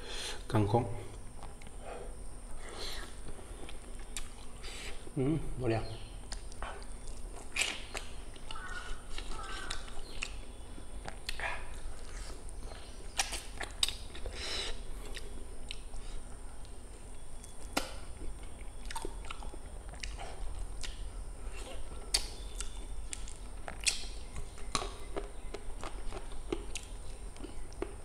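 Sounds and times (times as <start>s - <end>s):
chewing and biting: 2.9s - 4.6s, 6.2s - 10.4s, 11.0s - 14.3s, 17.4s - 28.0s
mouth clicks and smacks: 6.2s - 10.4s, 12.7s - 14.3s, 21.8s - 28.0s.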